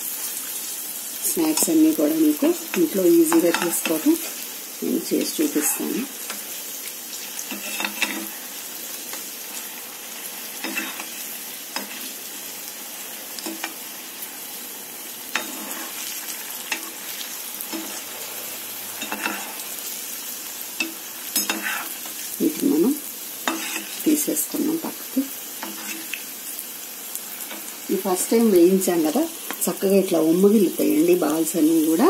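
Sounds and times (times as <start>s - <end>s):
food deep-frying in oil: 0.0s - 32.0s
metal skimmer scraping a pan: 7.5s - 8.4s, 21.4s - 22.0s.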